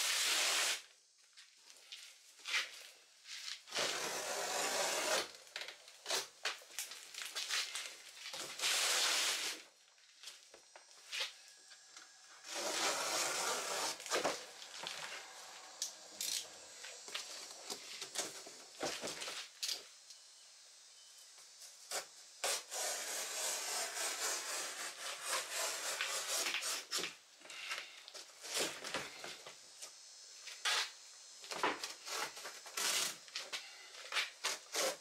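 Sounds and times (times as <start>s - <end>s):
blade slicing cardboard: 12.5s - 14.4s, 21.9s - 27.2s.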